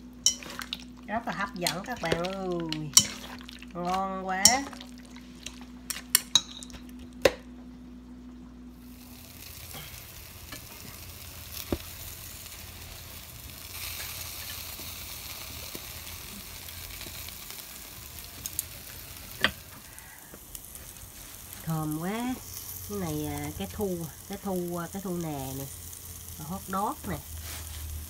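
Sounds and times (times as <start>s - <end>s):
utensils clicking against metal bowl: 0.2s - 0.8s, 1.6s - 4.8s, 5.5s - 6.8s
meat sizzling on a grill: 8.8s - 28.0s.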